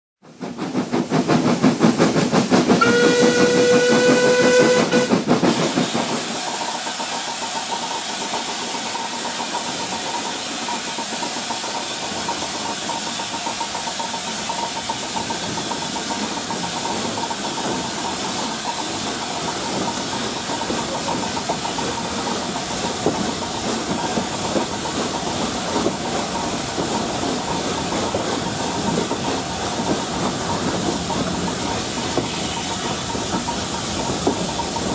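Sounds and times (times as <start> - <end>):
steam locomotive exhaust beats: 0.2 - 34.9
train running noise: 0.2 - 34.9
steam hissing: 0.3 - 34.9
steam whistle: 2.8 - 5.2.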